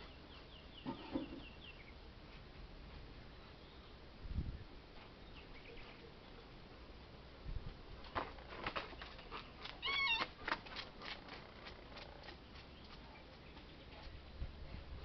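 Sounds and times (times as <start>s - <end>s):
cat meowing: 9.8s - 10.3s.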